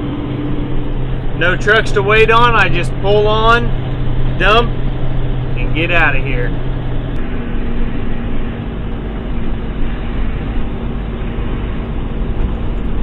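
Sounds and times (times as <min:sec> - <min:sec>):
diesel truck engine running: 0:00.0 - 0:13.0.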